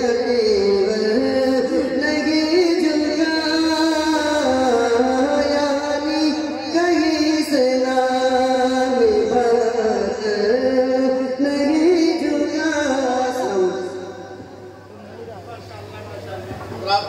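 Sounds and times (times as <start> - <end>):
man singing into microphone: 0.0 - 14.4.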